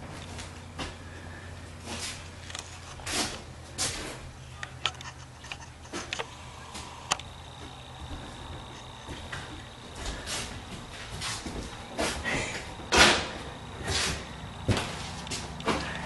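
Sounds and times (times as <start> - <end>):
low steady hum: 0.0 - 16.0
small clicks and knocks: 4.6 - 6.3
shuffling on bare floor: 8.0 - 12.3.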